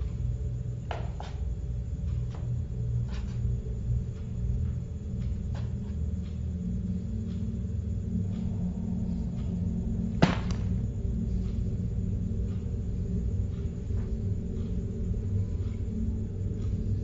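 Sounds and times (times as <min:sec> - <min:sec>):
low rumbling drone: 0:00.0 - 0:17.0
sudden sharp hit: 0:10.2 - 0:10.8.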